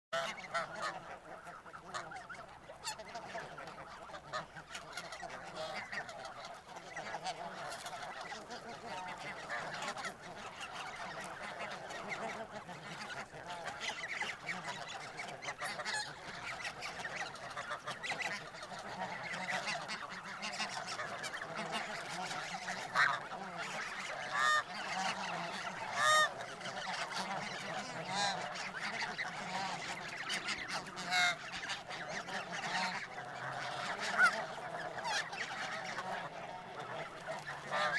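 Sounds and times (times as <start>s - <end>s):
geese honking: 0.2s - 37.9s.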